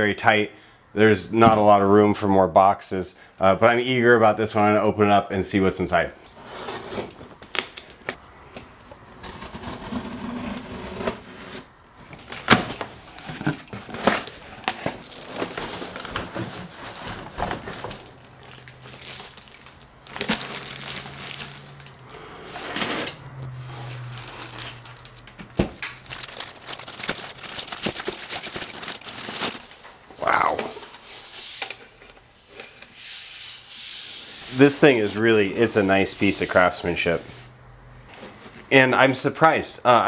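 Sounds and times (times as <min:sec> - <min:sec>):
cardboard box being cut: 0:09.2 - 0:11.7
plastic bag crinkling: 0:12.2 - 0:22.0, 0:23.4 - 0:29.9.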